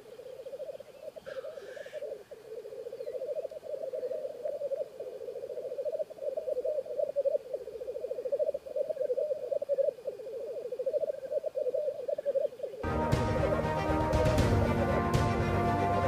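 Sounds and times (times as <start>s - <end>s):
grouse bubbling coo: 0.0s - 12.8s.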